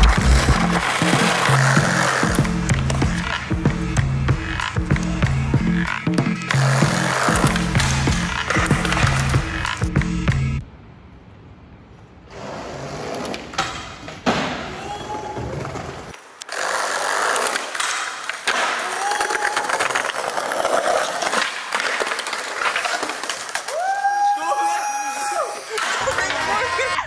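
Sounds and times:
skateboard wheels rolling: 0.0s - 10.2s, 11.9s - 27.0s
skateboard clacks: 0.0s - 10.3s, 15.5s - 24.3s.

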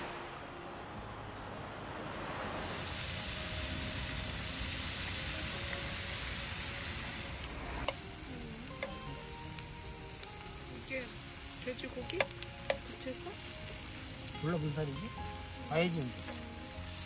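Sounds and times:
pork sizzling in a pan: 2.5s - 17.0s.

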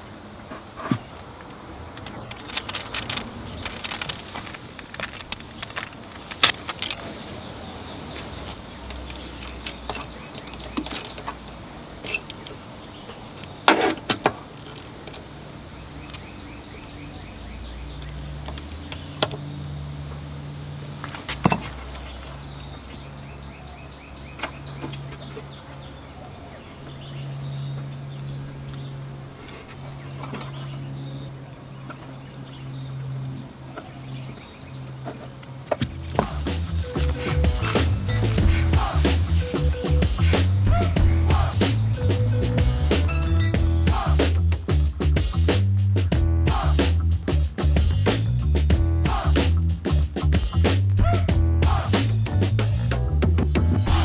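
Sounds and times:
metal tools clinking on engine parts: 8.8s - 12.6s, 13.2s - 15.4s.

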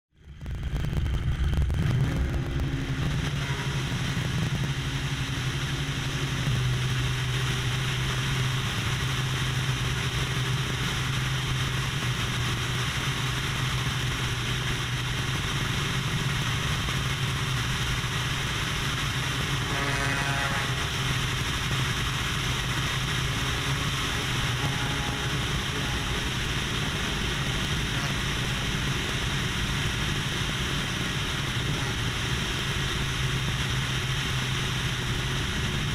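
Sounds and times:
propeller plane engine droning: 0.1s - 35.9s.

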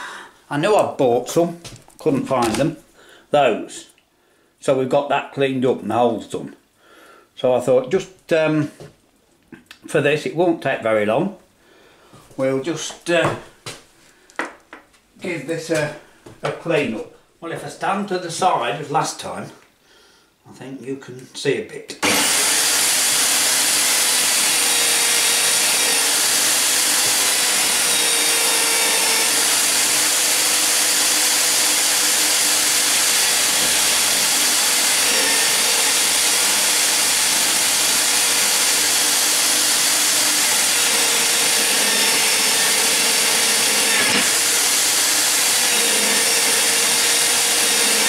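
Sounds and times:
wire brush on drill rasping whir: 22.0s - 48.0s.

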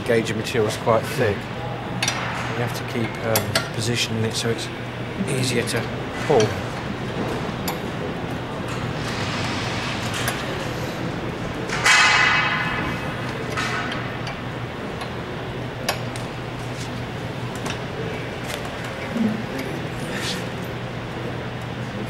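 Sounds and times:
loud metal clang: 11.6s - 14.3s.

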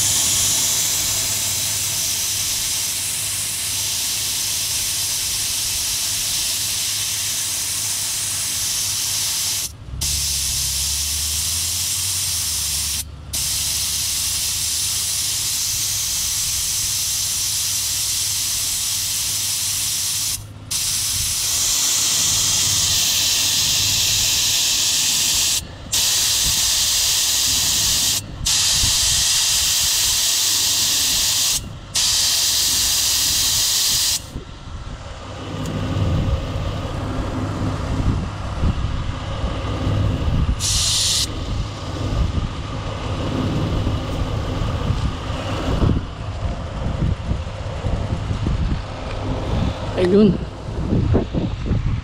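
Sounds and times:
air hissing out of tire: 0.0s - 34.4s, 40.4s - 42.0s
wind rumbling on microphone: 27.8s - 29.4s, 34.3s - 52.0s.

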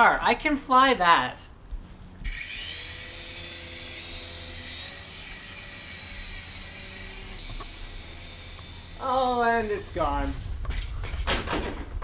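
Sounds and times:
toy helicopter motor whine: 2.2s - 10.2s.

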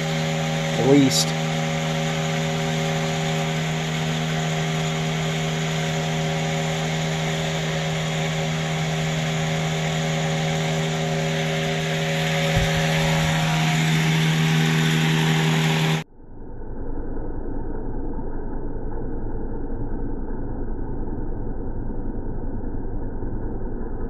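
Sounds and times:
electric motor humming: 0.0s - 16.0s.

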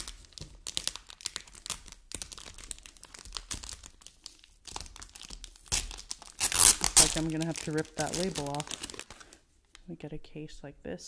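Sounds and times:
packaging crinkling: 0.0s - 9.8s.

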